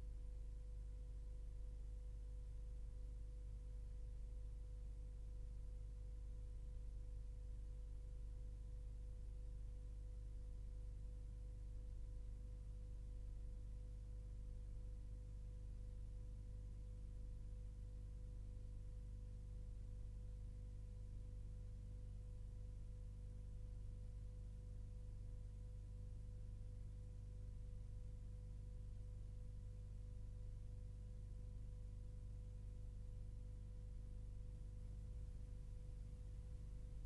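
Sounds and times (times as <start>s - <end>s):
low hum: 29.6s - 37.0s.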